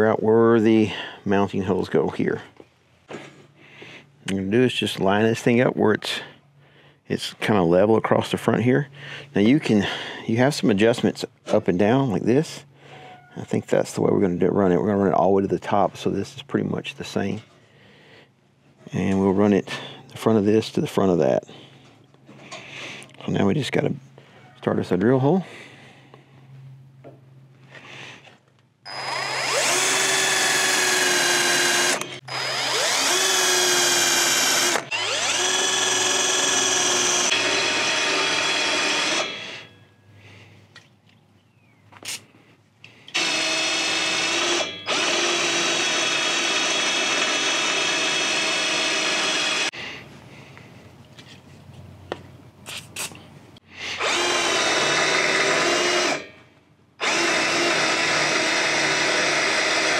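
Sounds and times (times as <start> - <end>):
cordless drill boring through steel: 28.9 - 39.7, 43.1 - 49.8, 54.0 - 56.4, 57.0 - 59.9.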